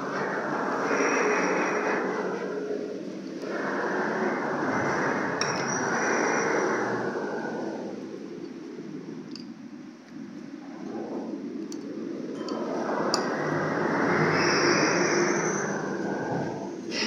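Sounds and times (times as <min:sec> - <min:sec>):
vehicles passing: 0:12.5 - 0:17.0.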